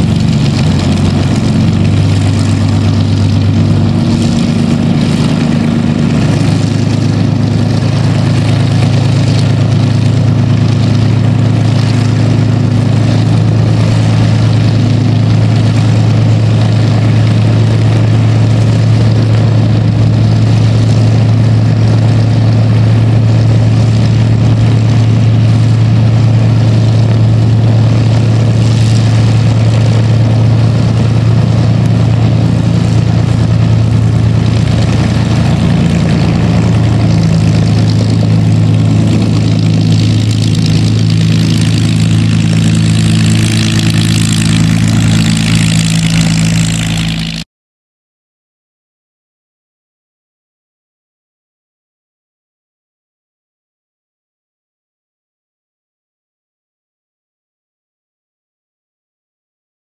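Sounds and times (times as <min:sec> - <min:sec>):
aircraft engine droning: 0:00.0 - 0:47.4.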